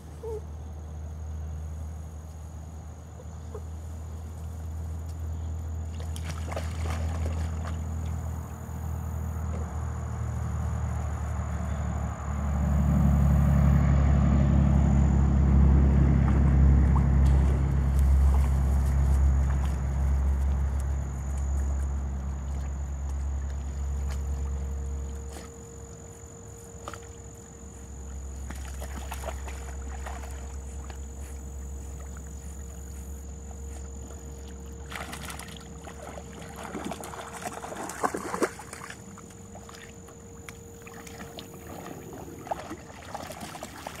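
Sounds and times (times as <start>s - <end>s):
water splashing and sloshing: 3.3s - 11.5s, 15.3s - 44.0s
low microphone rumble: 8.2s - 26.0s.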